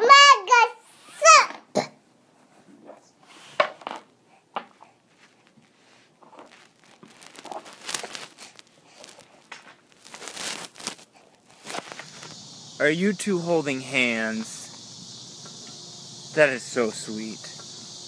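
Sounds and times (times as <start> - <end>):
crinkling and rustling: 3.6 - 12.4.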